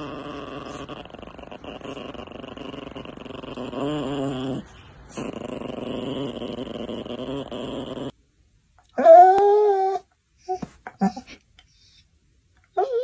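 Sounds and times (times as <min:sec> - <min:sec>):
dog growling: 0:00.0 - 0:08.2.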